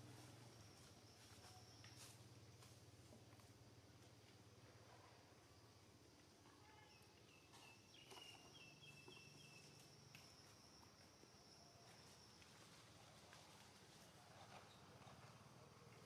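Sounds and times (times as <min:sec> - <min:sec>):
high insect whine: 0:00.1 - 0:02.6
distant bird chirps: 0:06.5 - 0:10.8.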